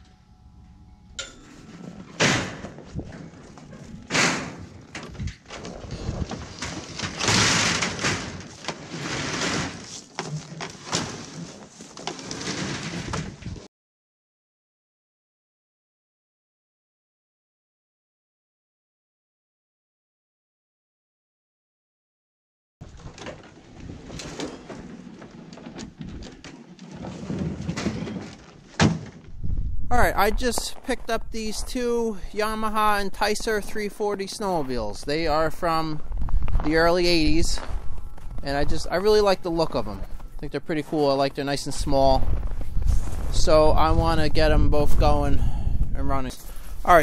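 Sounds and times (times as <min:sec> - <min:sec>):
metal knocks and clanks: 0:01.2 - 0:13.6, 0:22.9 - 0:29.3
snowmobile scraping on metal mesh: 0:01.2 - 0:13.6.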